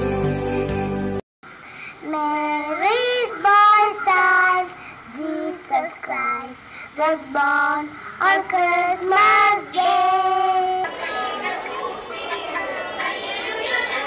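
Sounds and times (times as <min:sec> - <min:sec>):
girls singing into a microphone: 0:07.1 - 0:14.0.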